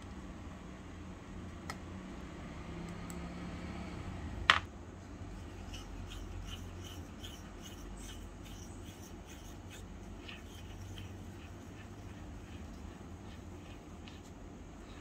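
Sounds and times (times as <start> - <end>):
utensil scraping cooking vessel: 5.3 - 15.0.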